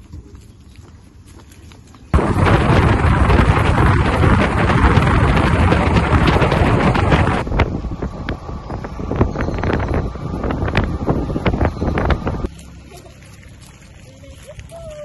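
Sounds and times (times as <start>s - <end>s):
road noise: 0.0s - 15.0s
wind buffeting microphone: 2.1s - 12.5s
motorcycle engine running: 2.2s - 13.4s.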